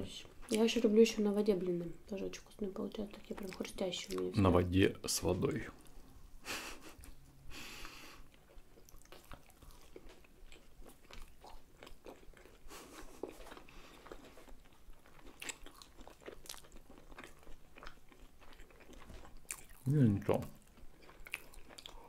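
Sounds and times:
wet mouth chewing clicks: 15.0 - 19.9, 20.6 - 22.0.

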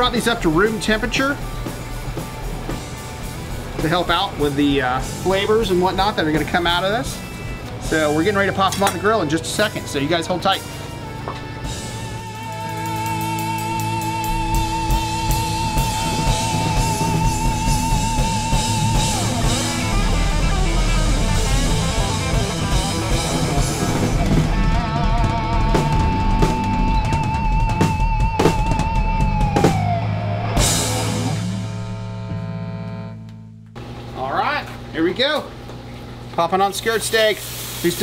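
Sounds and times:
instrumental rock jam: 0.0 - 34.2
lead guitar with vibrato: 11.6 - 33.7.

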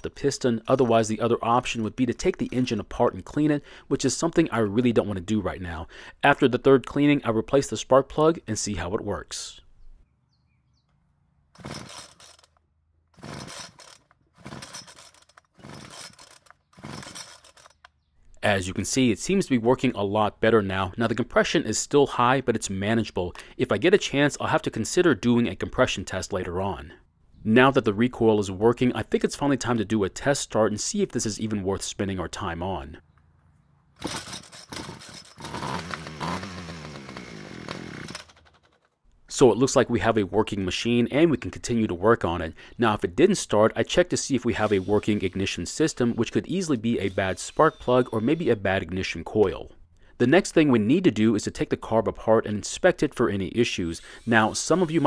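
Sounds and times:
recoil starter rope whirring: 11.5 - 12.6, 13.2 - 17.9, 34.0 - 38.7, 54.0 - 55.0
engine turning over: 11.6 - 12.5, 13.2 - 17.8, 34.0 - 38.7.

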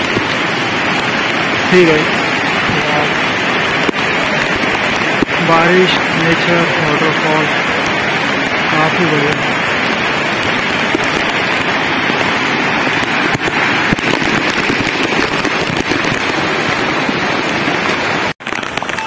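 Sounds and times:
stream rushing over rocks: 0.0 - 19.0.

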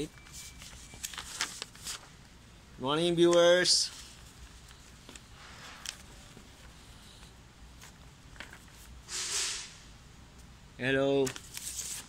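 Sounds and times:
papers rustling: 0.0 - 2.2, 3.2 - 8.9, 11.1 - 12.0.

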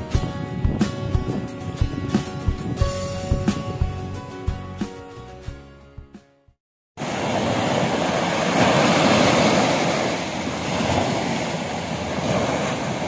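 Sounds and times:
small waves washing on beach: 7.0 - 13.0.

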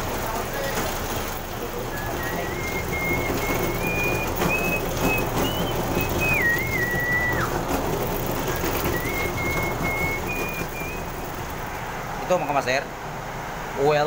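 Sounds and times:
machine rollers humming: 0.0 - 14.0
person whistling a tune: 1.9 - 7.6, 8.5 - 11.4.

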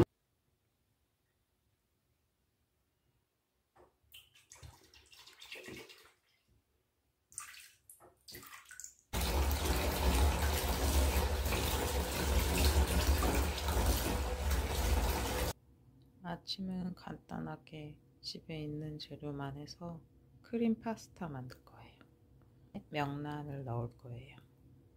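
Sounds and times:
tap water running into bathtub: 3.8 - 6.5, 7.3 - 15.6.

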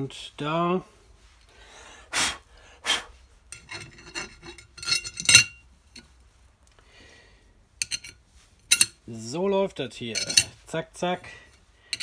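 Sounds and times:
metal clank: 3.5 - 5.6, 7.8 - 9.0, 10.1 - 10.6
metal ring ringing: 3.5 - 6.1, 7.8 - 9.0, 10.1 - 10.6
metal scraping: 3.5 - 6.1, 7.8 - 9.0, 10.0 - 10.6
metallic clinks and rubbing: 3.5 - 6.1, 7.8 - 9.0, 10.0 - 10.6.

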